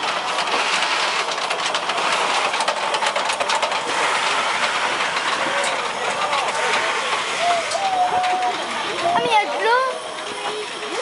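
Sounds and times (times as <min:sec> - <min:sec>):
locomotive wheels clanking: 0:00.0 - 0:11.0
steam hissing: 0:00.1 - 0:11.0.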